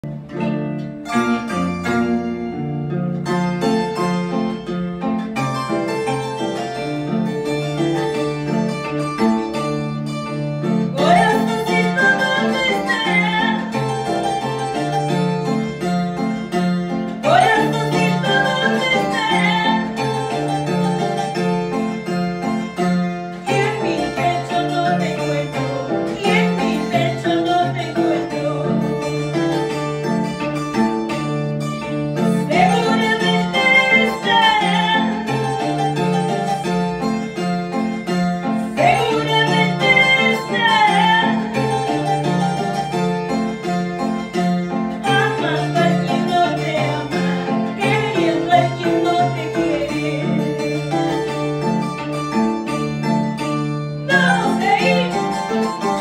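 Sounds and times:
harp music: 0.0s - 56.0s
sliding melodic line: 0.0s - 56.0s.

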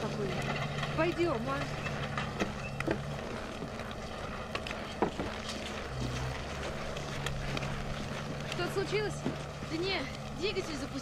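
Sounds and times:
engine humming: 0.0s - 11.0s.

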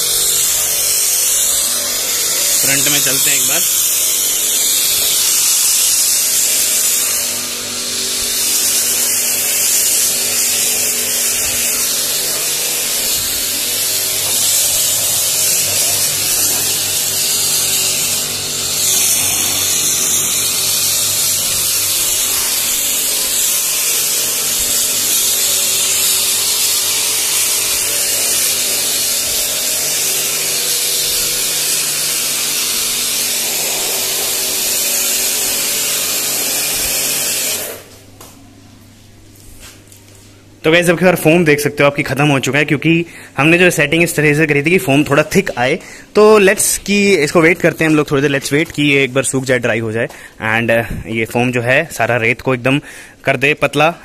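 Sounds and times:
foam cannon spraying hiss: 0.0s - 37.9s
pressure washer motor hum: 0.0s - 38.1s.

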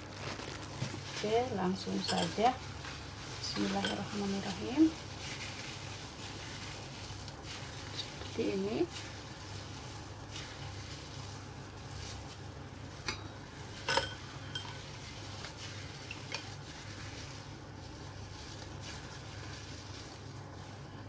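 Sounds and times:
steady low hum: 0.0s - 21.0s
metal spoon clinking on bowl: 2.0s - 2.4s, 13.8s - 14.8s.

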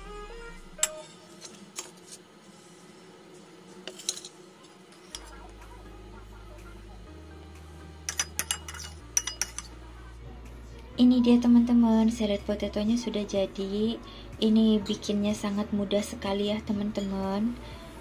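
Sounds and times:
metal spoon tapping ceramic plate: 8.1s - 9.7s.

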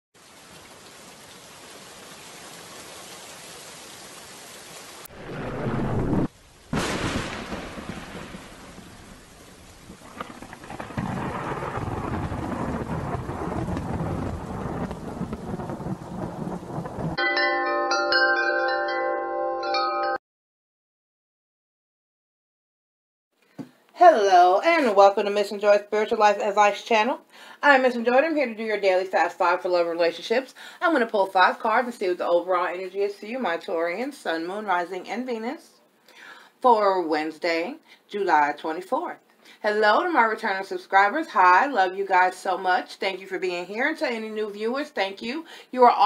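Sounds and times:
rain hissing: 0.2s - 17.2s
rolling thunder: 5.0s - 17.2s
chiming tones: 17.2s - 20.2s.

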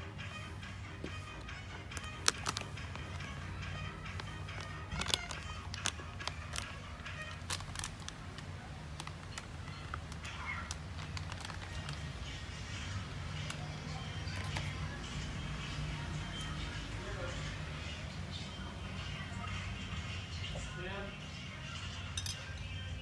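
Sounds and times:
plastic packet crinkling: 1.9s - 3.2s, 4.1s - 12.2s.

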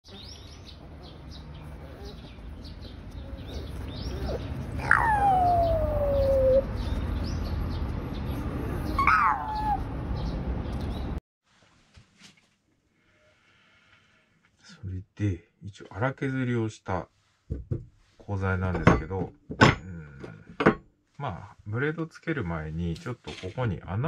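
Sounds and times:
animal's falling cry: 4.8s - 6.6s.

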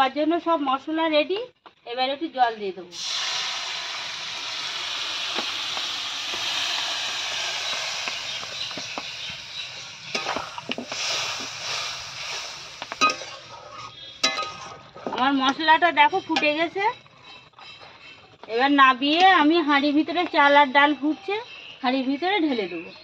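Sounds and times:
water sizzling in hot pan: 2.9s - 14.5s
ladle scraping metal pan: 10.1s - 14.8s.

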